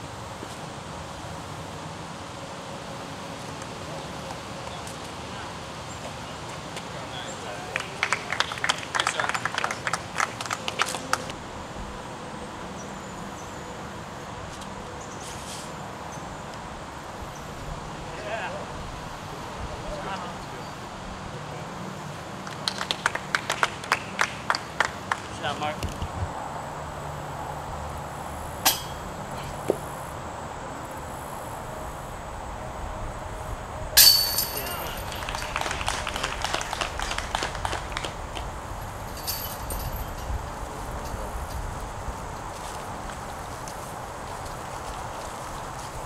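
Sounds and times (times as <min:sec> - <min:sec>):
faint insect hum: 0:11.4 - 0:24.9, 0:25.5 - 0:46.0
sharp metallic clink: 0:28.6 - 0:29.1, 0:34.0 - 0:35.5, 0:39.2 - 0:40.3.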